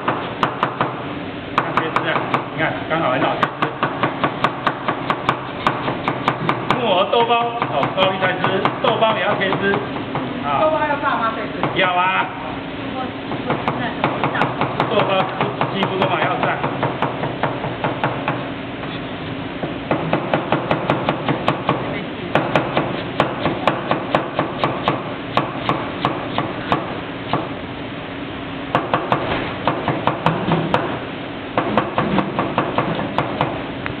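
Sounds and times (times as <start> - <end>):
steady hum: 0.0 - 34.0
cleaver chopping on cutting board: 3.4 - 6.9.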